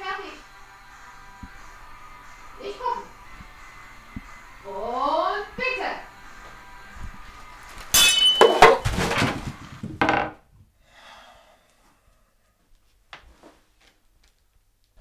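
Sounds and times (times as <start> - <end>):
dishes clattering onto floor: 8.0 - 10.4.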